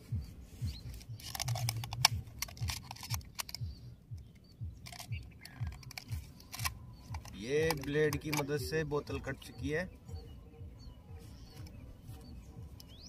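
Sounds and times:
plastic bottle crinkling as cut: 1.0s - 3.6s, 4.8s - 8.6s.

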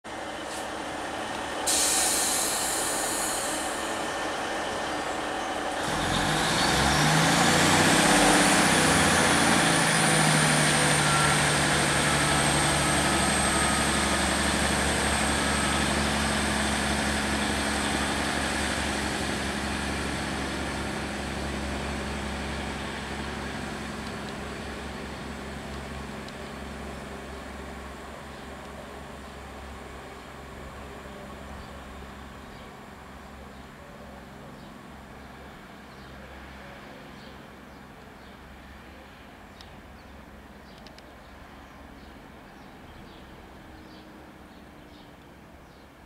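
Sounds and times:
train diesel engines whining: 0.1s - 40.6s
air hiss burst: 1.7s - 4.0s.

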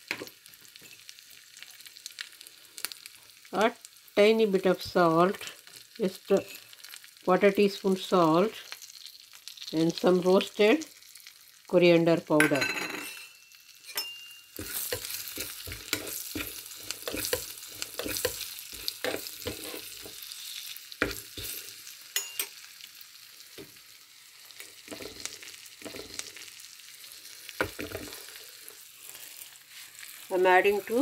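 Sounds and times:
spices sizzling in hot oil: 0.0s - 31.0s
spoon scraping a pan: 6.3s - 6.8s, 12.9s - 22.6s, 24.6s - 26.5s, 27.1s - 28.4s.

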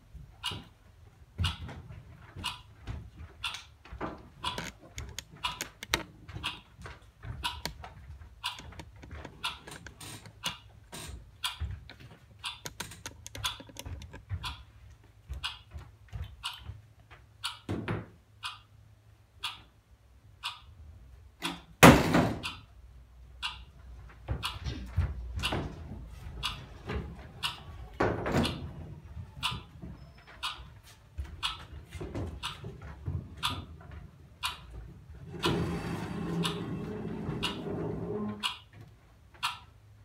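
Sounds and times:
metal chairs knocking and clicking: 24.2s - 30.0s.

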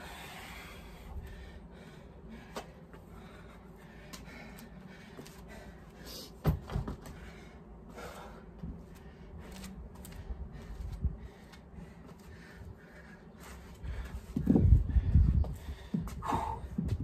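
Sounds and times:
dumbbells thumping on ground: 6.4s - 7.0s.

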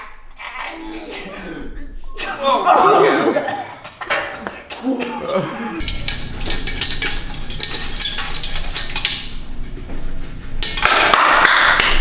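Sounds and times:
clinks against metal bowl: 5.8s - 9.4s.

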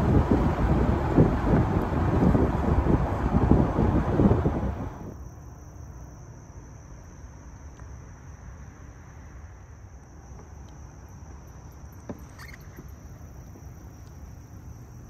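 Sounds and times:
low steady rumble: 0.0s - 15.0s
high insect drone: 4.8s - 15.0s.

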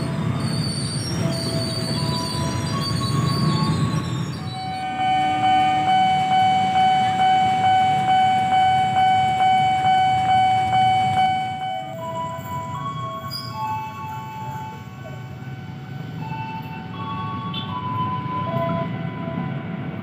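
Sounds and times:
electric train passing: 0.0s - 20.0s
level crossing bell ringing: 4.6s - 12.2s.

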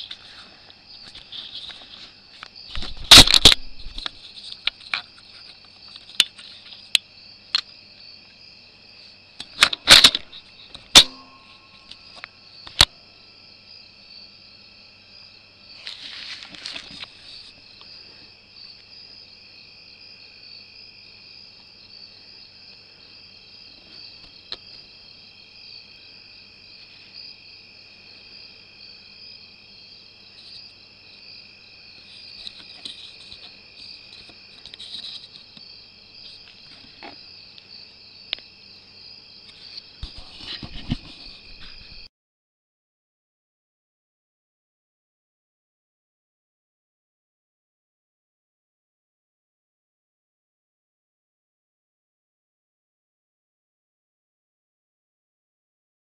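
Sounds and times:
brief rustle: 0.0s - 6.8s, 15.8s - 17.6s, 39.5s - 42.1s
night insects calling: 0.0s - 42.1s
sharp clicks and knocks: 9.4s - 12.0s.

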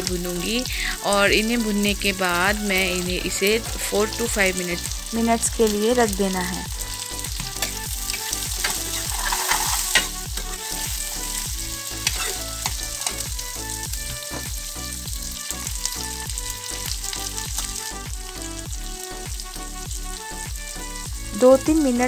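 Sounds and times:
vegetables sizzling in oil: 0.0s - 22.0s
spatula scraping metal pan: 7.4s - 13.3s.

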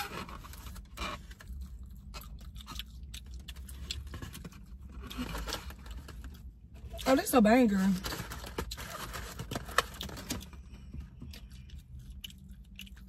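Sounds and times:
paper wrapper crinkling: 3.6s - 6.5s, 7.7s - 10.5s.

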